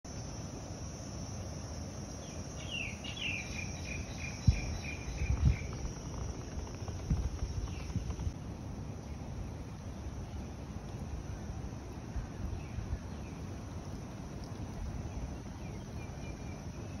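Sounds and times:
insects droning: 0:00.1 - 0:17.0
bird calling: 0:02.6 - 0:08.4
low thumps: 0:04.5 - 0:08.4.

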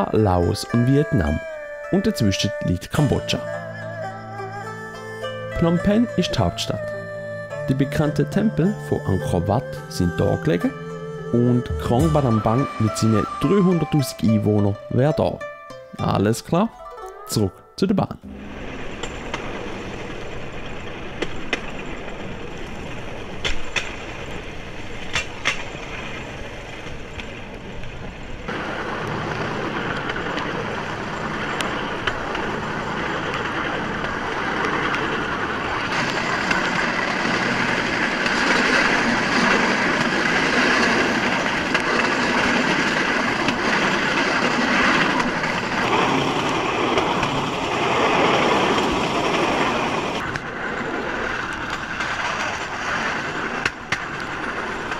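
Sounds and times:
rail cart rattling on track: 0:00.0 - 0:54.9.

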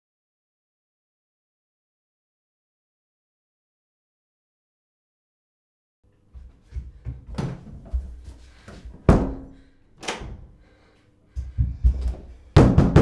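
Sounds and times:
thuds and bangs on a door: 0:08.9 - 0:10.4, 0:11.5 - 0:13.0.

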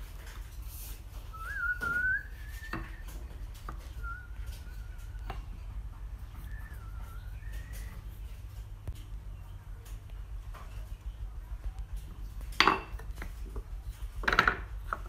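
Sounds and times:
person whistling a tune: 0:01.3 - 0:03.2, 0:04.0 - 0:05.2, 0:06.4 - 0:08.0
wooden pieces knocking on workbench: 0:14.2 - 0:15.0.

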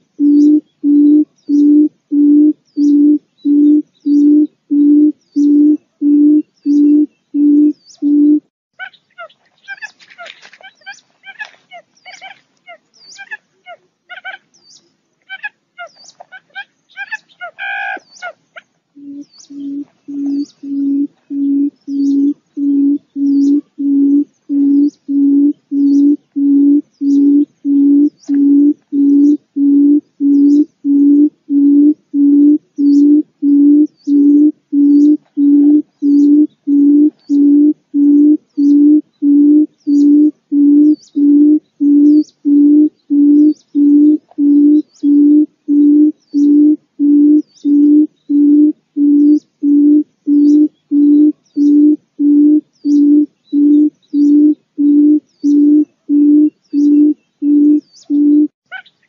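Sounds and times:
bird low hoots: 0:00.0 - 0:14.5, 0:15.3 - 0:58.9
faint high chirps: 0:12.0 - 0:59.0.

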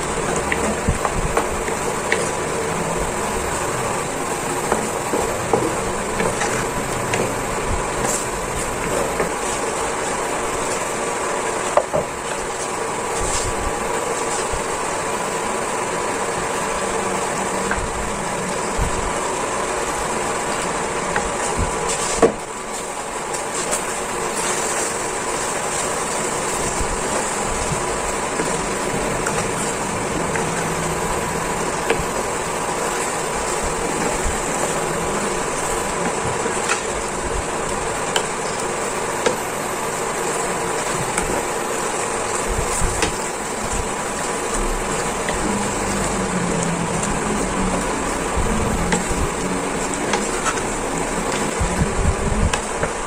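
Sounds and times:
humming hiss: 0:00.0 - 0:53.0
spatula stirring pasta in a pan: 0:00.0 - 0:53.0.

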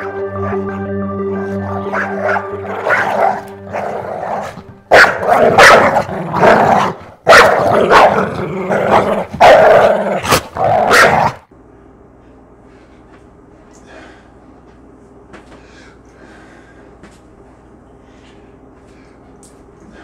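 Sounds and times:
dog barking loudly: 0:01.8 - 0:11.4.

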